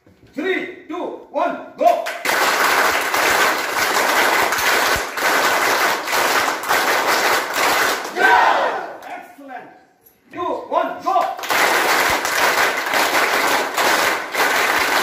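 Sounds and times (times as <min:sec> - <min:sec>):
crowd clapping in rhythm: 0:01.8 - 0:09.2, 0:11.1 - 0:15.0.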